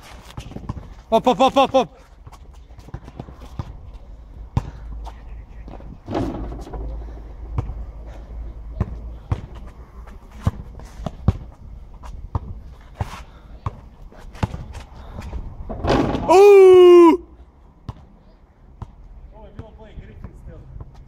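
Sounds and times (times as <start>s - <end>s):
basketball bouncing on asphalt: 0.1s - 16.2s, 17.8s - 21.0s
ball hitting rim: 6.1s - 7.8s, 15.7s - 16.5s.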